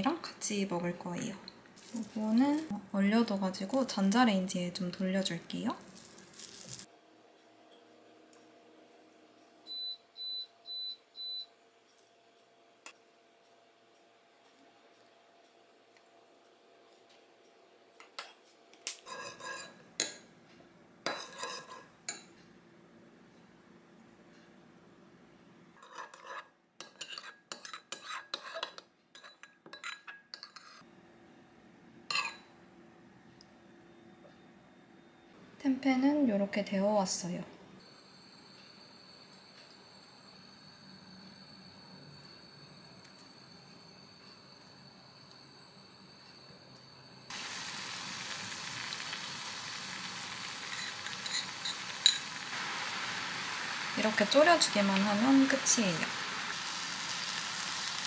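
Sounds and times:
food sizzling in a pan: 1.8 - 2.8, 5.5 - 6.9, 47.2 - 58.0
metal spoon scraping ceramic bowl: 19.0 - 19.8, 21.1 - 21.9, 25.8 - 30.8, 50.7 - 52.2
spoon clinking against bowl: 32.1 - 32.5, 50.7 - 52.3.

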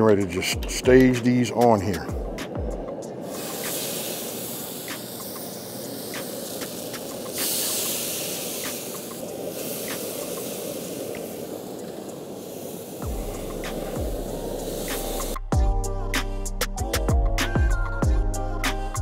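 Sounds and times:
chicken sizzling on a grill: 3.2 - 15.4.

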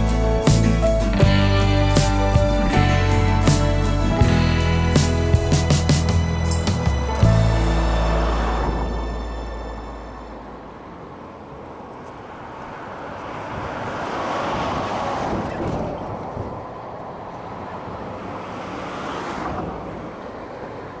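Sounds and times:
wind buffeting microphone: 13.2 - 18.0.

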